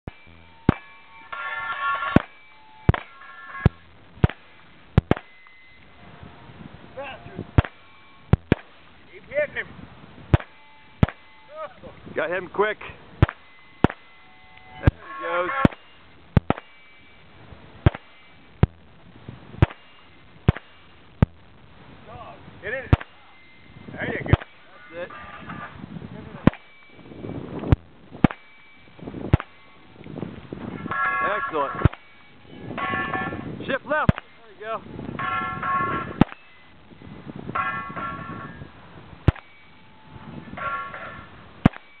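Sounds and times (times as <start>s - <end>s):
bullet plinking steel target: 0.1s - 1.4s, 2.1s - 5.8s, 7.6s - 8.8s, 10.3s - 11.3s, 13.2s - 14.2s, 15.6s - 17.2s, 17.8s - 18.8s, 19.6s - 21.4s, 22.9s - 23.4s, 24.2s - 24.7s, 26.4s - 27.0s, 27.7s - 29.8s, 31.8s - 33.4s, 34.1s - 34.4s, 36.2s - 36.6s, 39.2s - 39.8s, 41.6s - 42.0s
rifle gunshots: 2.1s - 3.2s, 4.2s - 5.4s, 7.6s - 8.8s, 10.3s - 11.3s, 13.2s - 14.1s, 15.6s - 16.9s, 17.8s - 18.3s, 19.6s - 20.9s, 26.4s - 26.8s, 29.3s - 29.6s.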